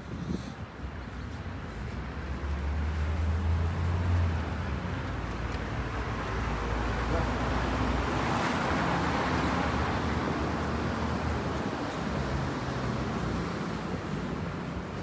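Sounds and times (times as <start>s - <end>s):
city street traffic: 0.0s - 15.0s
vehicle passing close by: 2.4s - 4.8s.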